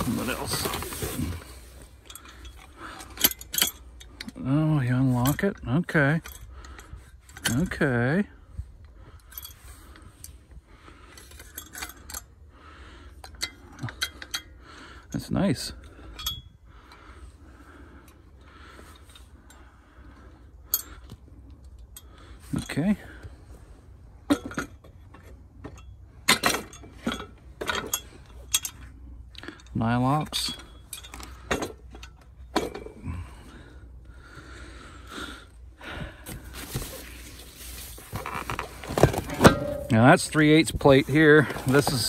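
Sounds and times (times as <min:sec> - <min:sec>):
metal parts knocking and shuffling: 0:00.0 - 0:01.4, 0:24.3 - 0:28.9, 0:29.5 - 0:33.0, 0:38.1 - 0:42.0.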